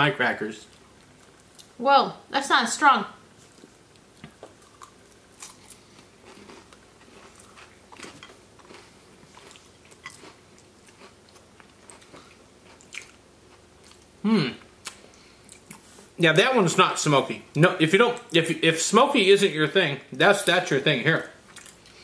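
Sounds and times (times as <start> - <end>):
people chewing crackers: 3.4 - 16.1, 21.4 - 22.0.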